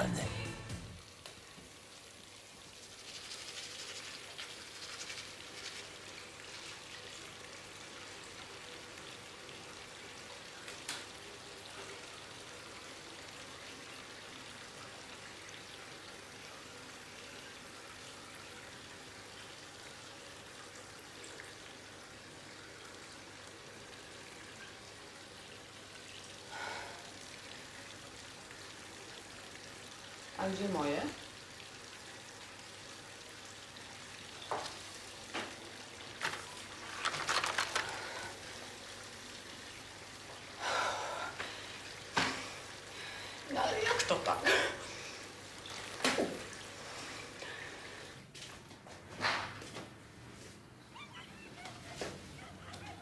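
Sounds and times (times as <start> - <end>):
tap water running into sink: 0.0 - 48.5
toothbrush scrubbing: 2.8 - 6.9.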